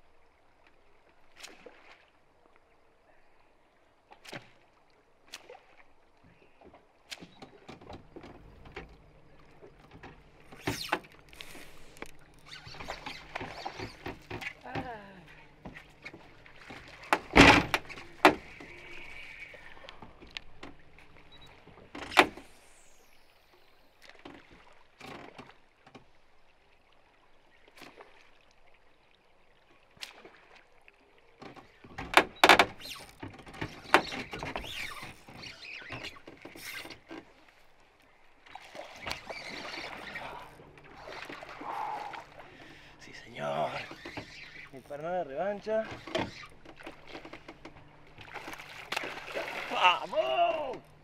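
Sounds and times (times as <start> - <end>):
rustling water: 0.0 - 51.0
lure splashing on water: 4.0 - 6.1, 38.4 - 45.0, 45.6 - 51.0.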